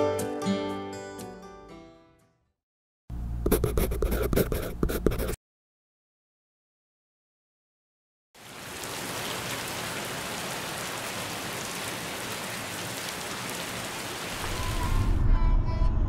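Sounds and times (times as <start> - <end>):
heavy rain pouring: 8.4 - 15.2
low rumble: 14.4 - 16.0.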